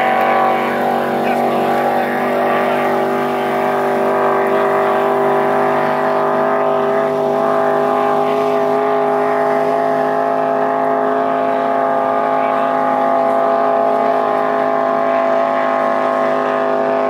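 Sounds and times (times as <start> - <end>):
racing boat engine running: 0.0 - 17.0.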